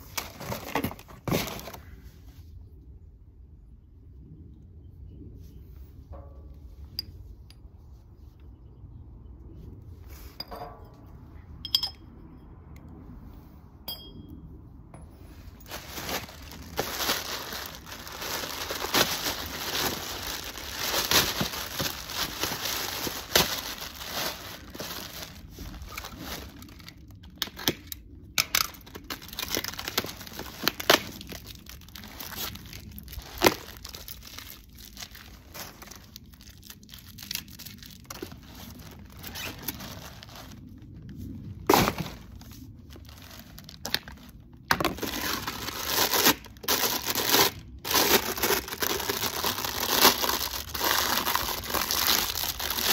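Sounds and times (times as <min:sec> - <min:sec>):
plastic packaging crinkling and tearing: 0:00.0 - 0:01.9, 0:15.6 - 0:52.9
metal pipe fittings clinking: 0:10.4 - 0:12.1.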